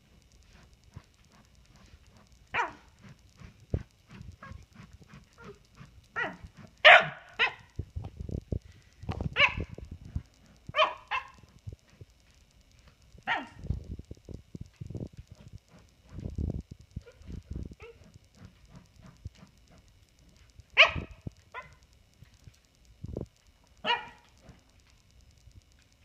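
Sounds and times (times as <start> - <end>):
paws scratching a dog bed: 0.1 - 7.7, 14.6 - 16.4, 17.0 - 22.5
dog barking sharply: 6.2 - 7.6.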